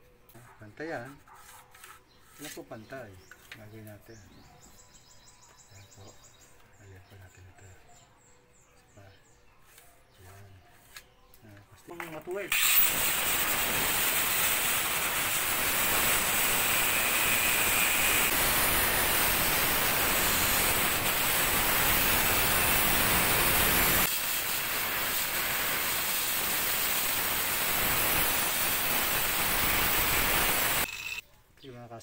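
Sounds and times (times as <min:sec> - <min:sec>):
angle grinder cutting plastic pipe: 0:12.5 - 0:31.2.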